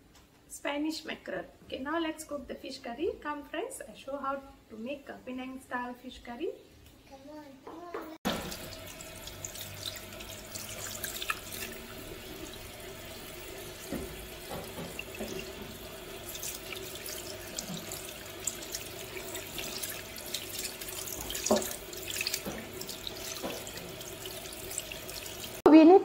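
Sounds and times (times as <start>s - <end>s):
tap water running into metal sink: 8.2s - 25.7s
hands rinsing fish with splashing: 8.3s - 25.6s.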